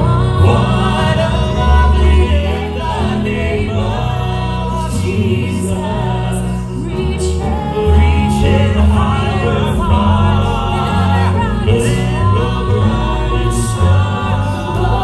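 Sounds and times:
gospel group singing in harmony: 0.0 - 15.0
instrumental accompaniment with bass: 0.0 - 15.0.

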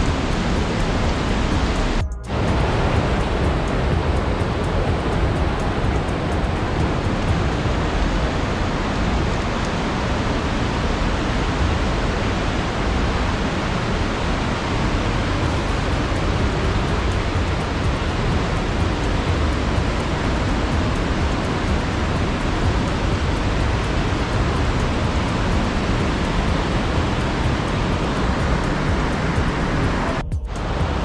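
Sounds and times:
mountain stream rushing: 0.0 - 31.0.

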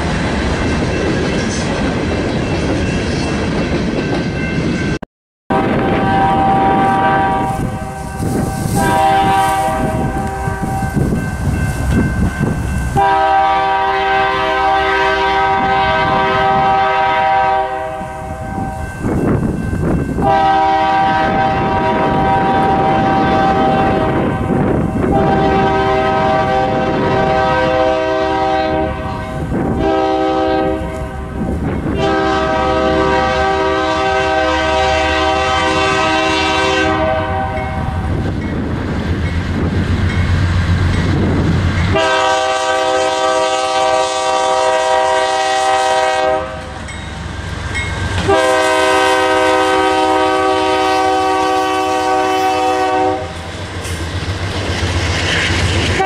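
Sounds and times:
train rumbling past: 0.0 - 56.0
train wheel noise: 0.0 - 56.0
locomotive air horn blasts: 5.5 - 11.0, 12.9 - 18.8, 20.2 - 38.1, 41.9 - 46.8, 48.2 - 53.4.

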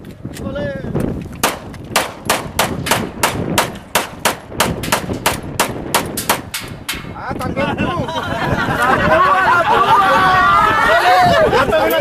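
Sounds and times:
rapid sharp bangs: 1.4 - 7.2.

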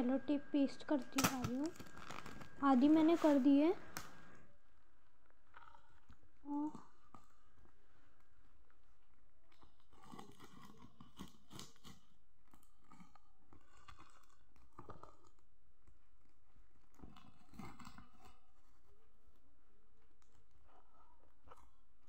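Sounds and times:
low steady hum: 0.0 - 22.0
packing tape pulled and torn: 1.0 - 4.4.

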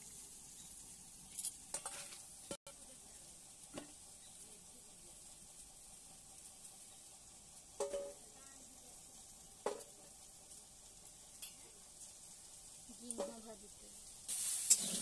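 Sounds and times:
vegetables sizzling in a pan: 0.0 - 15.0
metal spatula knocking on pan: 7.8 - 8.2, 9.7 - 9.9.

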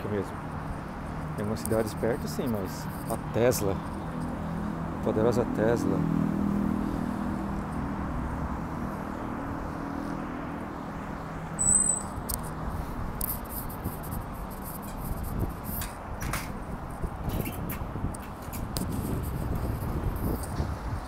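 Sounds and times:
road traffic noise: 0.0 - 21.0
short high-pitched beep: 11.6 - 12.1.

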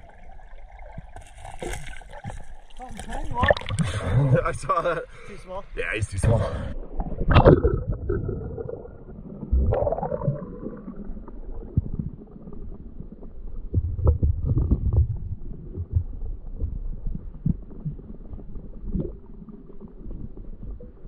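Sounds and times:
muffled underwater stream rumble: 0.0 - 5.2, 5.8 - 21.0
knocks among stones underwater: 7.0 - 8.7, 13.6 - 18.0.

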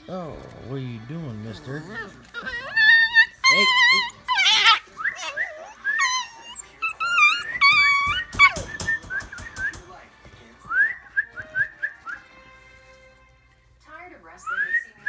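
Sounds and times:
puppies whining and squealing: 0.2 - 9.8
sharp clicks: 8.0 - 9.9.

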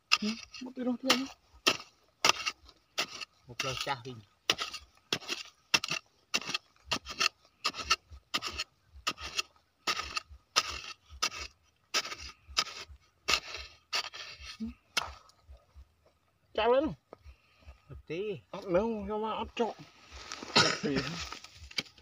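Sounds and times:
digging blade scraping sandy soil: 0.0 - 15.3, 20.1 - 22.0.

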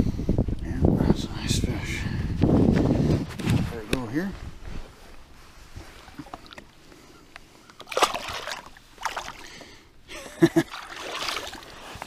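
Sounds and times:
water splashing against boat: 5.7 - 6.8, 7.8 - 9.7, 10.5 - 12.0.

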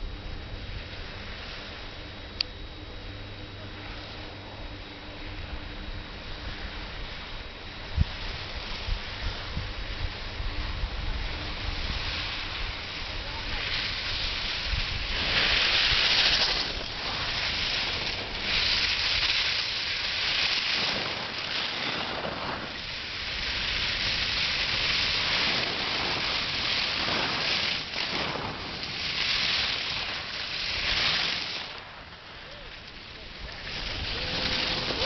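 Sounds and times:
wind rumble on microphone: 0.0 - 35.0
skis hissing over snow: 8.0 - 35.0.

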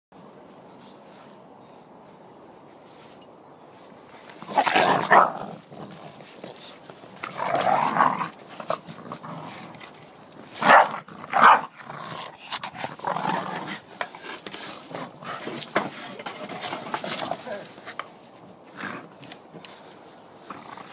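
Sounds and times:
dogs growling: 4.4 - 16.7, 20.4 - 20.9
dogs barking: 5.0 - 5.4, 10.6 - 11.7.

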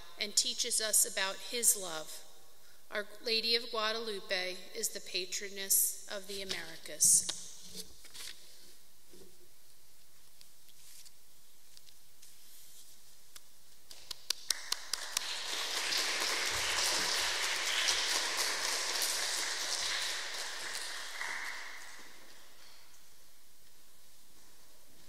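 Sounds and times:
audience applause: 14.5 - 22.6.

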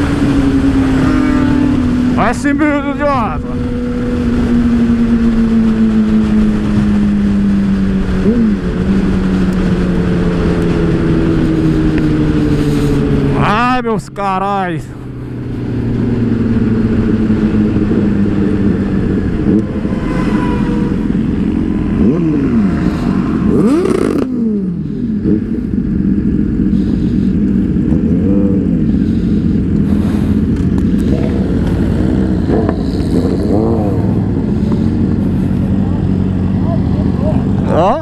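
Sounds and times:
motorcycle engine running: 0.0 - 38.0
passing motorcycle engines: 0.0 - 38.0.

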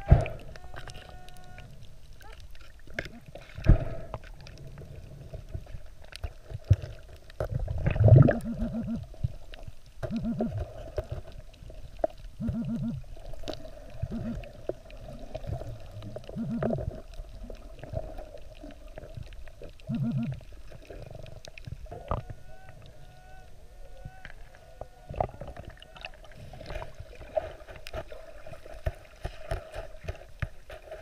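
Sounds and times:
digging in sand underwater: 0.0 - 31.0
low steady hum: 0.0 - 31.0
muffled underwater pinpointer buzzing: 8.2 - 9.3, 10.0 - 10.8, 12.4 - 13.3, 13.9 - 14.6, 16.3 - 17.0, 19.8 - 20.5.

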